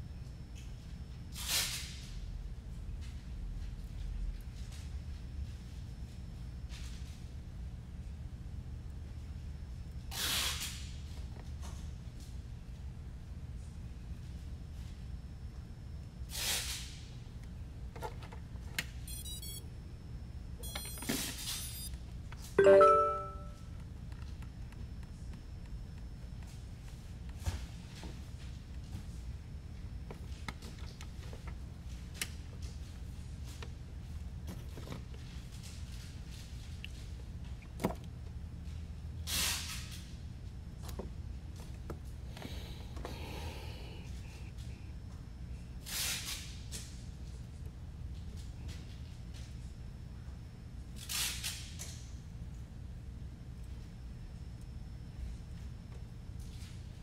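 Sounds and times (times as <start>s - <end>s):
steady low hum: 0.0s - 57.0s
drone motor startup beeps: 19.1s - 19.6s, 20.6s - 21.9s.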